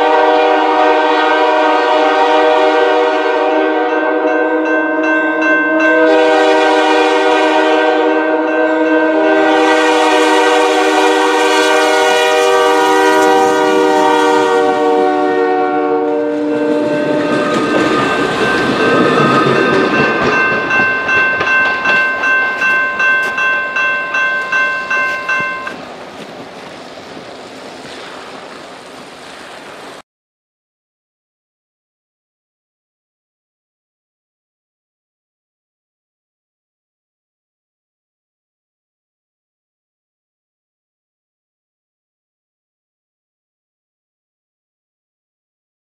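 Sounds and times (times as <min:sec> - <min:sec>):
locomotive air horn chord: 0:00.0 - 0:19.6
train rumble: 0:08.4 - 0:30.0
train wheels clacking over rail joints: 0:17.1 - 0:26.7.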